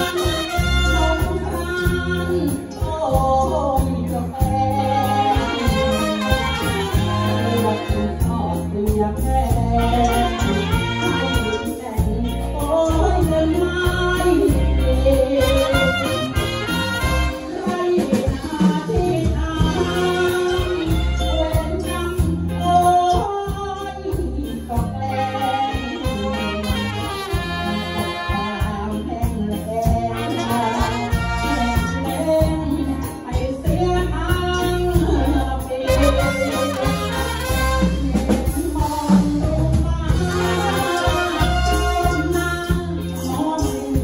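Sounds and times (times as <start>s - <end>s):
saxophones and trumpets: 0.0s - 2.5s, 4.7s - 8.6s, 9.4s - 12.9s, 14.2s - 18.5s, 19.6s - 22.2s, 24.7s - 33.1s, 34.5s - 44.0s
drum kit: 0.0s - 44.0s
electric bass: 0.0s - 44.0s
man singing: 0.0s - 44.0s.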